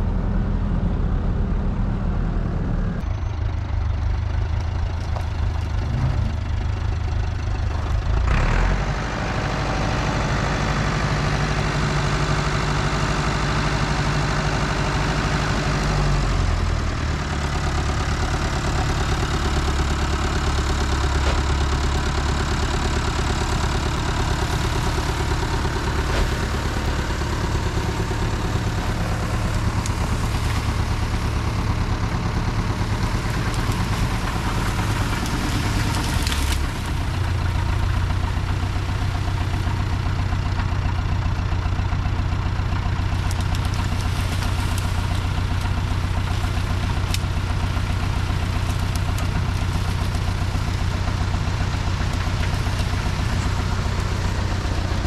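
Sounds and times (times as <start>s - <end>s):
diesel engine running: 0.0s - 55.0s.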